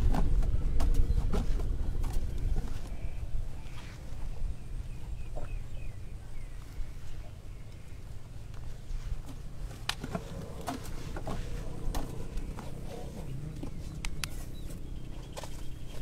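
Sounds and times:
low steady rumble: 0.0 - 16.0
elephants crunching food: 8.2 - 16.0.

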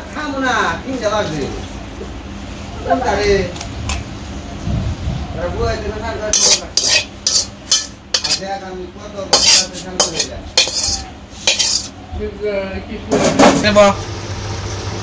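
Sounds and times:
spatula scraping metal wok: 6.3 - 8.5, 9.3 - 12.0.

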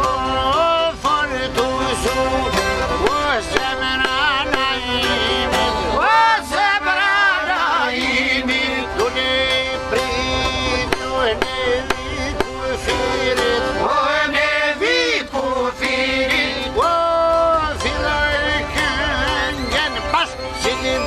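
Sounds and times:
accordion: 0.0 - 21.0
mandolin: 0.0 - 21.0
plucked lute: 0.0 - 21.0
violin: 0.0 - 21.0
steady drum beat: 3.0 - 5.5, 10.9 - 13.8.

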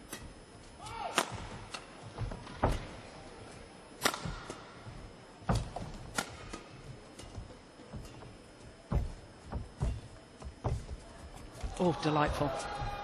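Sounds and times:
rackets striking shuttlecock: 0.1 - 1.9, 4.0 - 4.8, 5.5 - 7.4
court shoes squeaking: 4.2 - 11.9.

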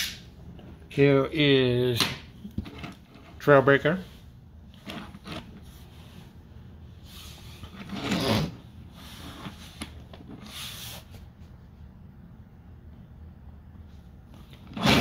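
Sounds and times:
plastic toys scraping on a table: 4.8 - 5.6, 7.2 - 10.9, 14.6 - 15.0.

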